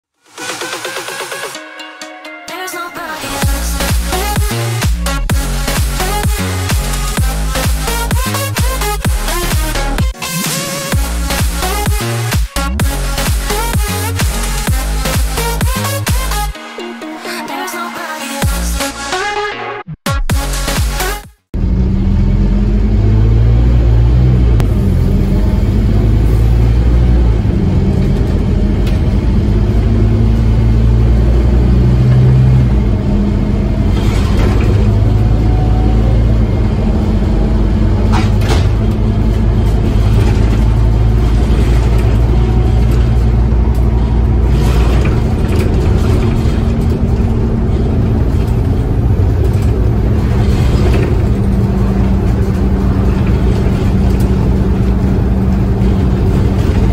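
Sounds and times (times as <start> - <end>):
bus diesel engine running: 3.0 - 16.8, 20.4 - 56.9
road and tyre noise: 3.2 - 16.6, 20.5 - 56.9
knocks and rattles: 37.8 - 56.9.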